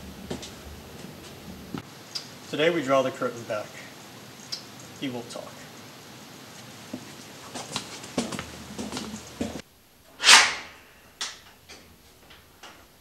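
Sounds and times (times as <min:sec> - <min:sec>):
sudden rush of noise: 0:10.2 - 0:11.0.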